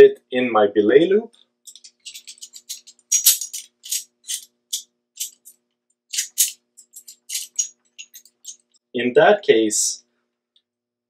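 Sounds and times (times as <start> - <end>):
carabiner clinking and rattling: 1.7 - 8.7.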